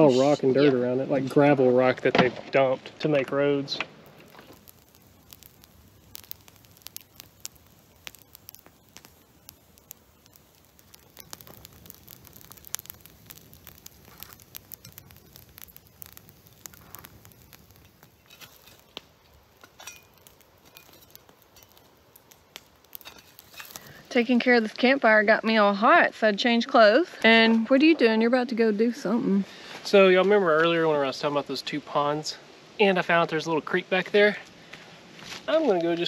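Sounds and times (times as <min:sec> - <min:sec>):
campfire crackling and popping: 0:00.0 - 0:36.0.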